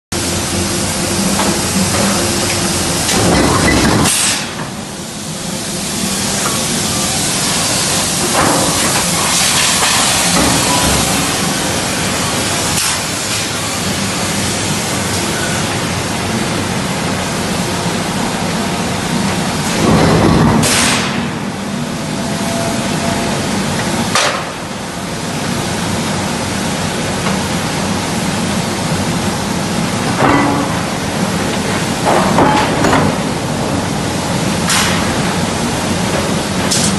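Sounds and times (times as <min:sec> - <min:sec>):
forge shop noise: 0:00.1 - 0:36.9
forging press hissing bursts: 0:00.2 - 0:17.2.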